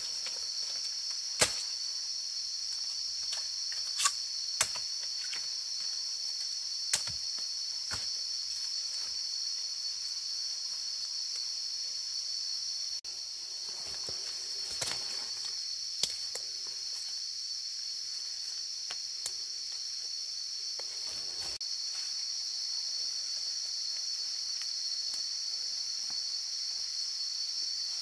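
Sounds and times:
insects shrilling: 0:00.0 - 0:28.0
twigs cracking underfoot: 0:13.8 - 0:16.5.

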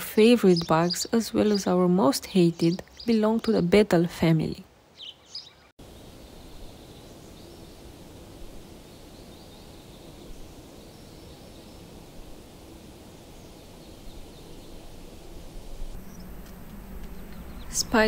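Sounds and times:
soft even hiss: 0:04.9 - 0:18.0.

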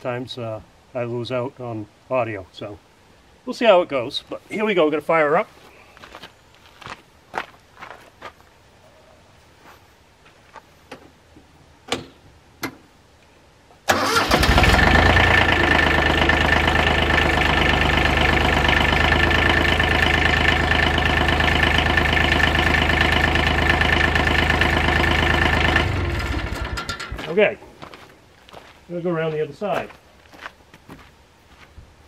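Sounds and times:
tractor diesel engine running: 0:13.9 - 0:27.3.

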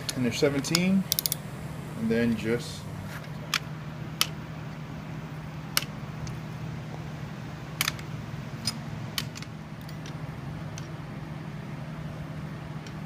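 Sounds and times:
steady low hum: 0:00.0 - 0:13.0
wrench clicking on metal: 0:00.1 - 0:01.4.

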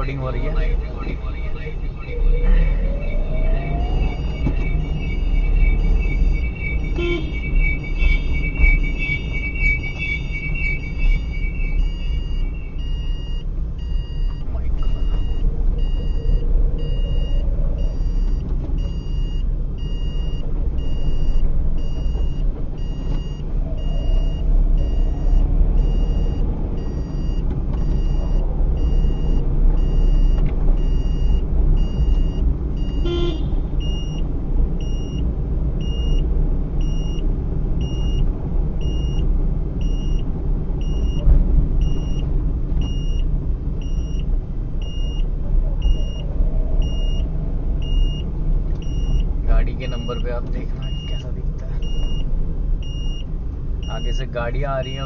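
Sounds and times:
high electronic beep: 0:00.0 - 0:34.2, 0:45.8 - 0:53.2
car engine and road rumble: 0:00.0 - 0:55.0.

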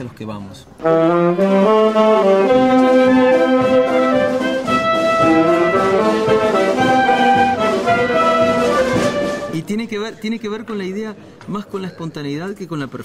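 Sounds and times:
saxophone and brass playing: 0:00.8 - 0:09.7.

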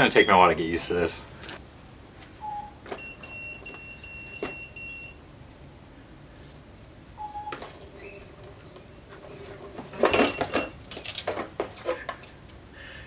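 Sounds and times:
hoverboard buzzer beeping: 0:03.0 - 0:05.2.

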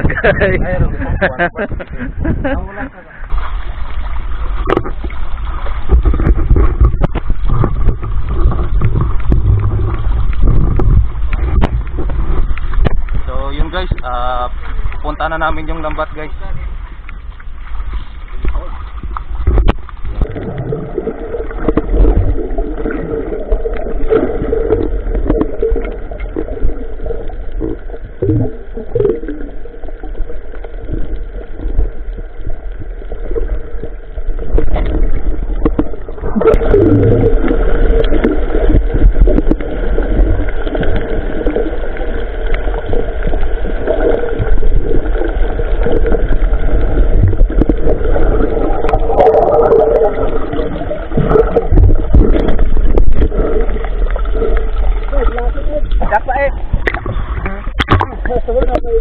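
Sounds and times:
water sounds: 0:00.0 - 0:59.0.

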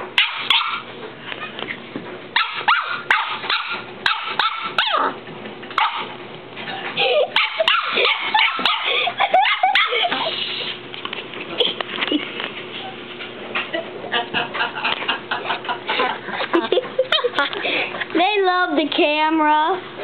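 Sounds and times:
puppy barking and yipping: 0:00.2 - 0:00.9, 0:02.4 - 0:05.2, 0:05.8 - 0:06.2, 0:07.3 - 0:10.2.

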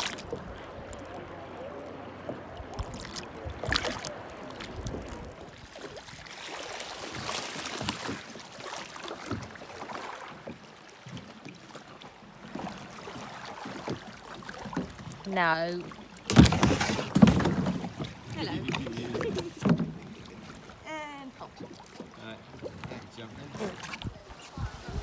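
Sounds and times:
sharp water splash: 0:00.0 - 0:00.5, 0:02.7 - 0:10.4, 0:16.1 - 0:20.4
water lapping against kayak hull: 0:00.0 - 0:25.0.

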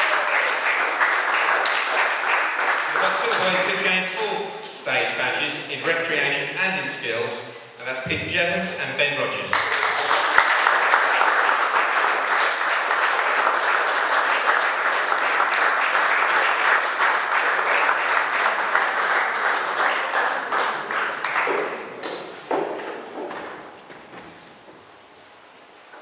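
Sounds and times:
audience applauding: 0:00.0 - 0:04.5, 0:09.5 - 0:22.0.

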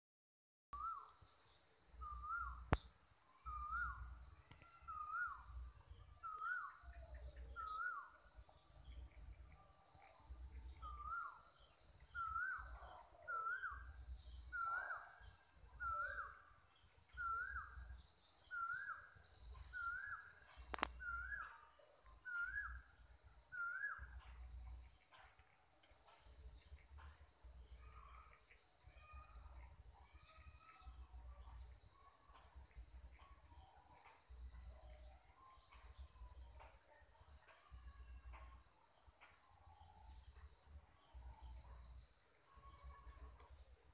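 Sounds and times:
crickets chirring: 0:00.8 - 0:25.1.

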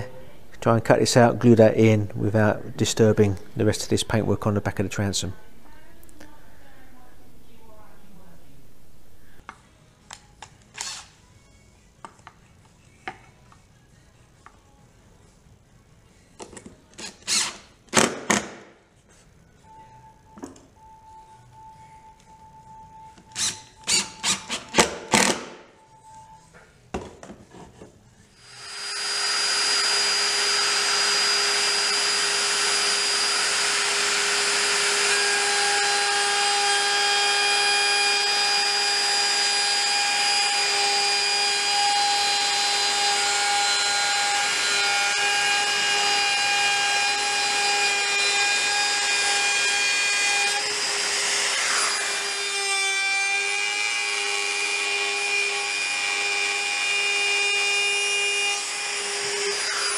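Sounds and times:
impact driver driving screws: 0:10.7 - 0:11.1, 0:17.0 - 0:18.6, 0:23.3 - 0:25.6
router cutting wood: 0:28.4 - 0:59.9.

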